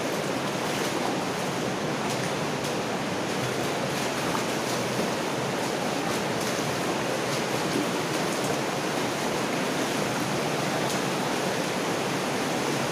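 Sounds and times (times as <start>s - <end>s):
water rushing along culvert: 0.0s - 12.9s
splashing wading steps: 0.1s - 12.9s.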